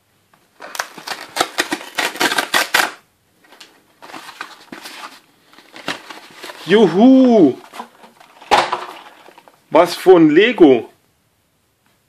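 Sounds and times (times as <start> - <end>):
cardboard tear strip ripping: 0.6 - 3.0
cardboard crackling: 0.6 - 9.6.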